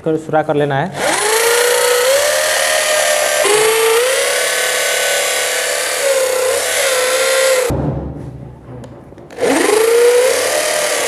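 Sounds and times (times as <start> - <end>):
electric drill boring wood: 0.9 - 7.7, 9.3 - 11.0.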